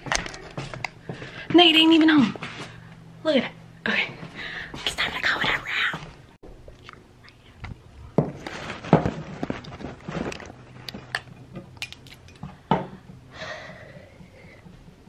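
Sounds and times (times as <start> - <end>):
footsteps: 0.0 - 3.0.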